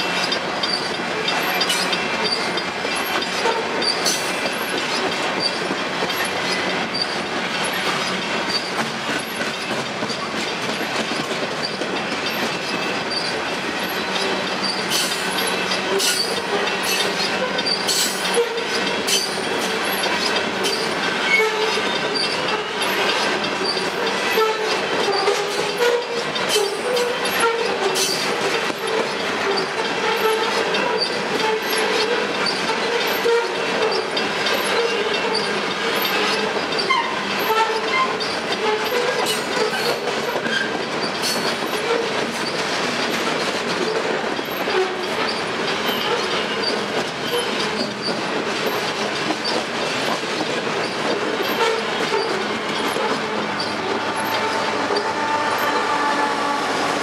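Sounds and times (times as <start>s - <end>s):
train wheels rumbling on rail: 0.0s - 57.0s
wheels squealing: 50.8s - 57.0s.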